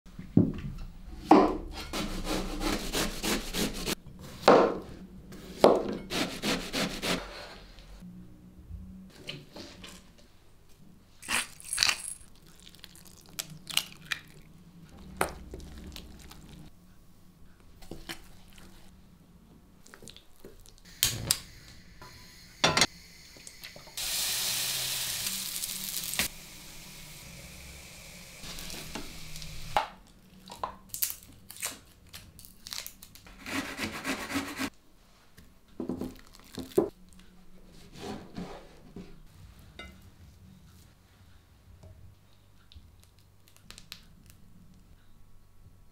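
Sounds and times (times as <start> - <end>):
frying sizzle: 20.9 - 29.8.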